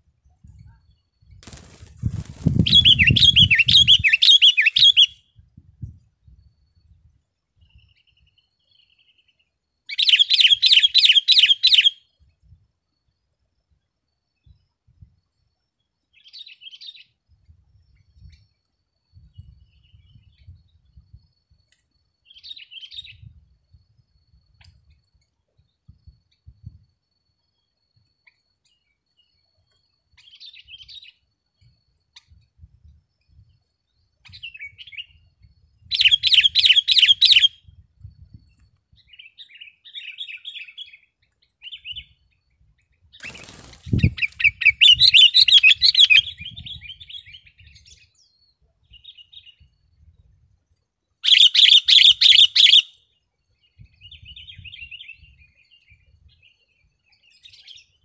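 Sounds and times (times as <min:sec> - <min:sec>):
bird calling and chattering: 0:02.6 - 0:05.2, 0:51.2 - 0:53.0.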